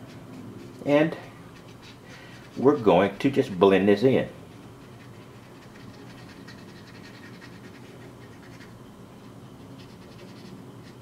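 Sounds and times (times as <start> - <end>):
light scratching strokes: 0.0 - 3.6, 4.4 - 11.0
steady low hum: 0.0 - 11.0.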